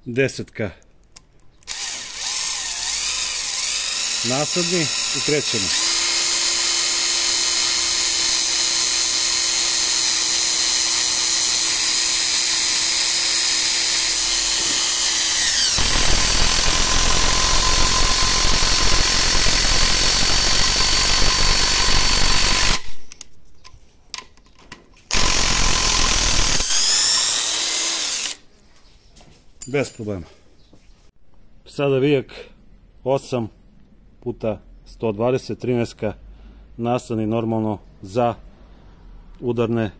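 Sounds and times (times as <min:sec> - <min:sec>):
impact driver motor whining: 0:01.7 - 0:23.2, 0:25.1 - 0:28.4.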